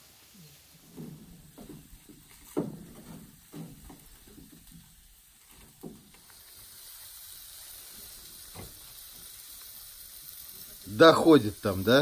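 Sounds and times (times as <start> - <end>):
food sizzling over fire: 0.0 - 12.0
soft knocks: 0.9 - 4.9.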